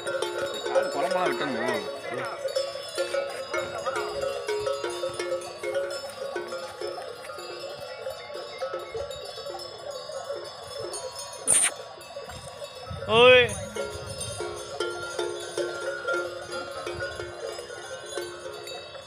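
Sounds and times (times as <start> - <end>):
cattle bells clanking: 0.0 - 19.0.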